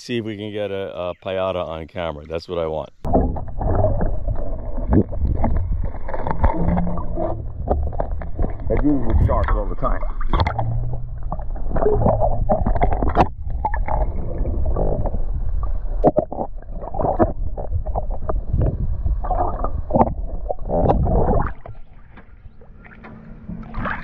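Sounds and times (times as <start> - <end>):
underwater river gurgling: 3.0 - 24.0
water sloshing surges: 19.2 - 24.0.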